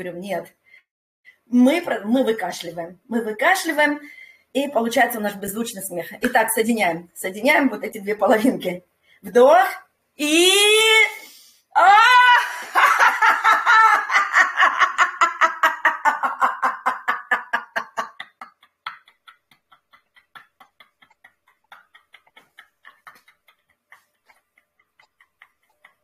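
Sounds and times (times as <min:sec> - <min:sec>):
woman laughing rhythmically: 0:12.0 - 0:26.0.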